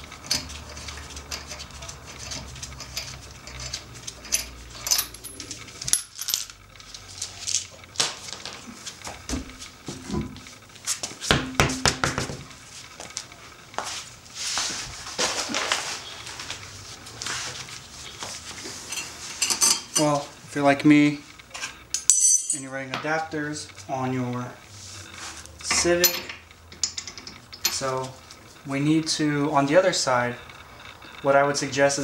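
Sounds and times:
ringing metal clanks: 21.9s - 22.7s.

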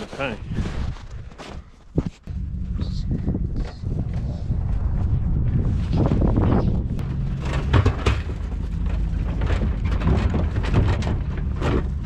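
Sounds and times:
vehicle engine running: 2.3s - 12.0s
metal tub knocking and rattling: 7.0s - 12.0s.

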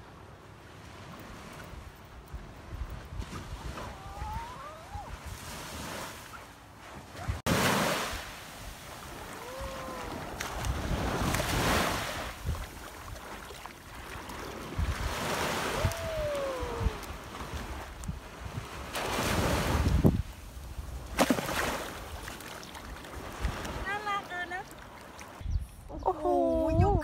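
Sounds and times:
wind buffeting microphone: 2.2s - 5.6s, 8.6s - 13.2s, 14.0s - 21.2s, 25.4s - 27.0s
waves washing on shore: 3.2s - 25.4s.

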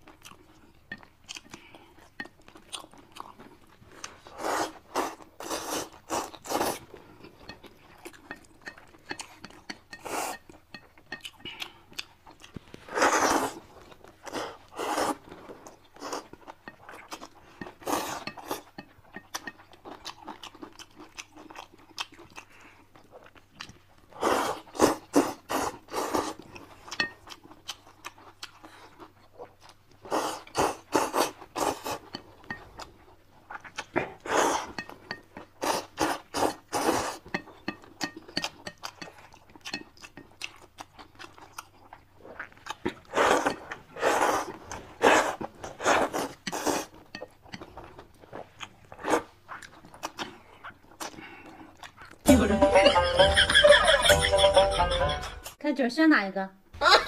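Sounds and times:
chewing and crunching: 0.0s - 52.3s.

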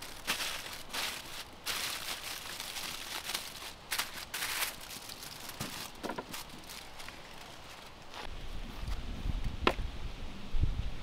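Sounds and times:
aluminium foil crinkling: 0.0s - 8.3s.

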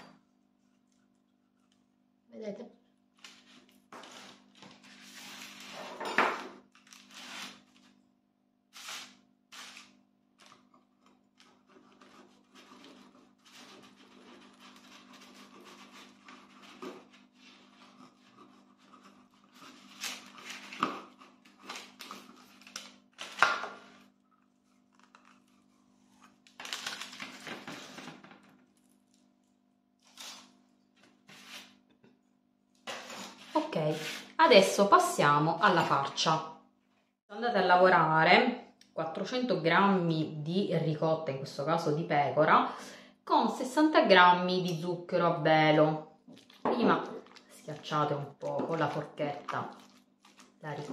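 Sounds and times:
knife scraping pastry: 8.7s - 10.0s, 10.9s - 26.4s, 32.8s - 34.4s.

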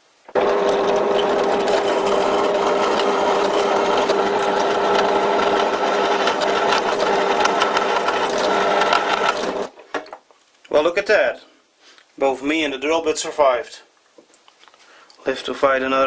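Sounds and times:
drill bit scraping metal: 0.3s - 9.7s
drill press running: 0.3s - 9.7s.

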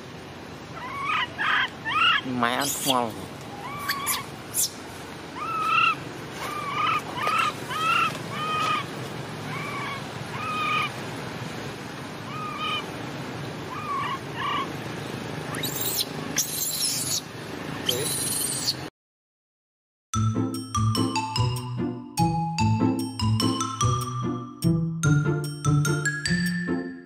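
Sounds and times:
infant monkey calls: 0.7s - 11.0s, 12.2s - 13.0s, 13.6s - 14.8s, 15.5s - 18.9s.

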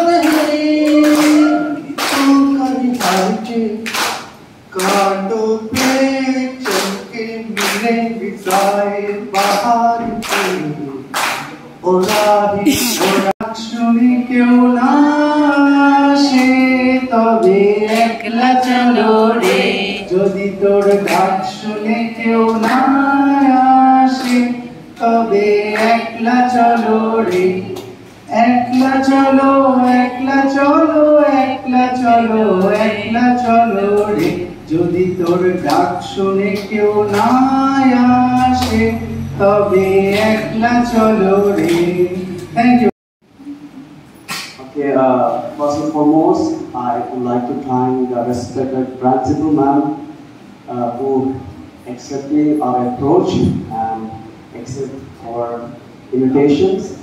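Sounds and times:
man singing into a microphone: 0.0s - 3.9s, 4.6s - 11.0s, 11.8s - 42.9s
hands clapping in time: 0.2s - 5.1s, 9.4s - 12.4s, 24.1s - 25.1s, 32.6s - 34.5s, 41.5s - 42.6s, 44.2s - 44.6s.

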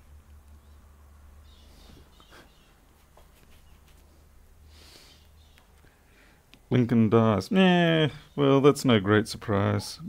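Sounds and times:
low electrical hum: 0.0s - 10.0s
soft rustling of gloved hands: 1.6s - 6.0s.

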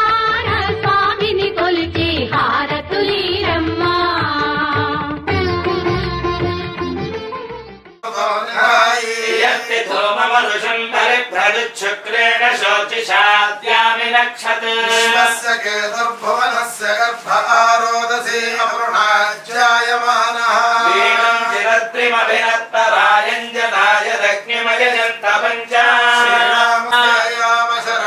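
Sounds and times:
man chanting: 8.0s - 28.0s.

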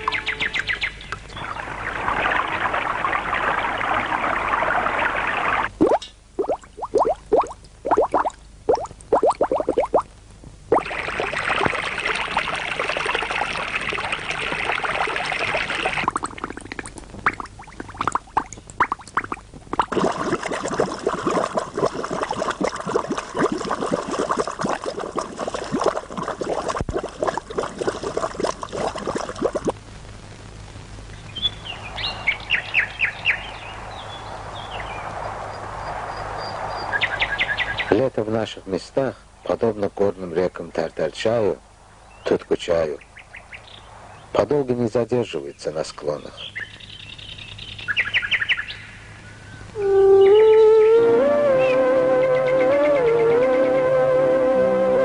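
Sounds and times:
water pouring and splashing: 1.3s - 10.0s, 10.7s - 29.8s.

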